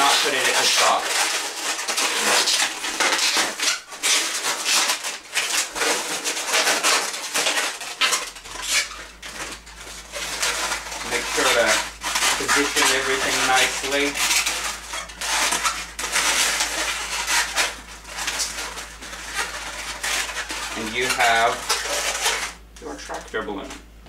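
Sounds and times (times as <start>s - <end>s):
balloon squeals: 0.0s - 23.8s
balloons squeaking and rubbing: 0.0s - 23.9s.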